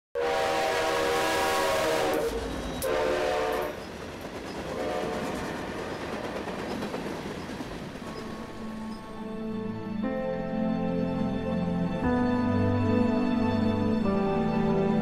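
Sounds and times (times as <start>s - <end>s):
locomotive air horn blasts: 0.2s - 3.8s, 4.7s - 5.2s.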